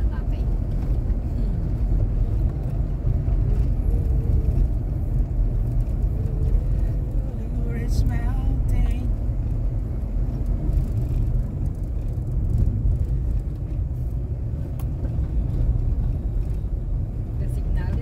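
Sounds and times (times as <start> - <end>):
car interior engine and road noise: 0.0 - 18.0.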